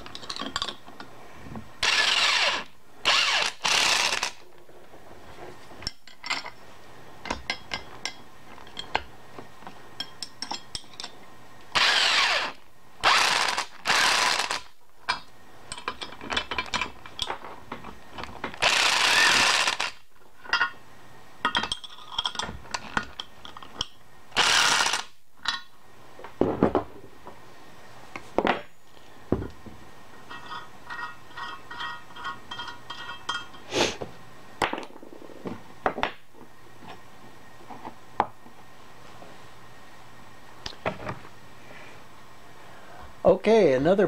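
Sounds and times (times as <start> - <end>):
metal tools clinking on workbench: 5.8 - 6.6, 21.4 - 23.8, 30.3 - 33.7.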